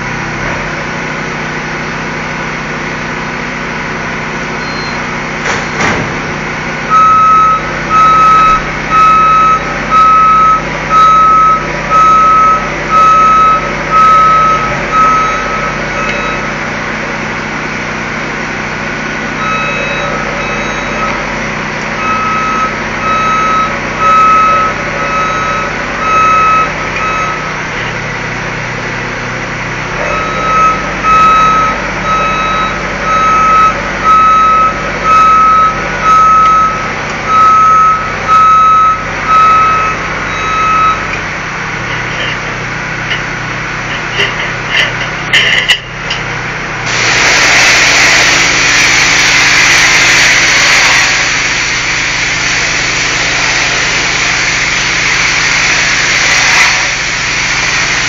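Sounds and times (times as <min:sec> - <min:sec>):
engine humming: 0:00.0 - 0:58.0
motion alarm beeping: 0:04.6 - 0:05.1, 0:06.9 - 0:16.6, 0:19.4 - 0:21.3, 0:22.0 - 0:27.6, 0:30.0 - 0:41.1.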